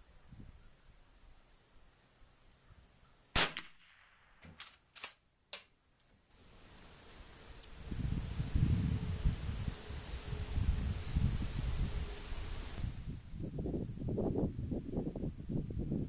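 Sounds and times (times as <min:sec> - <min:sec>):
insects trilling: 0:00.0 - 0:03.6, 0:04.2 - 0:16.0.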